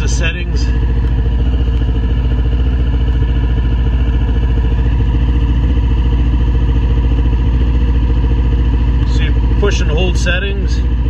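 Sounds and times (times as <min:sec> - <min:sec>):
snowmobile engine idling: 0:00.0 - 0:11.0.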